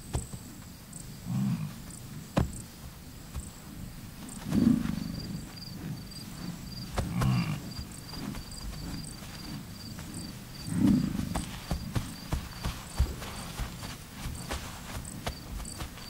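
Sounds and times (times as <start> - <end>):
insects chirping: 0.0 - 16.0
bison bellowing: 4.5 - 11.9.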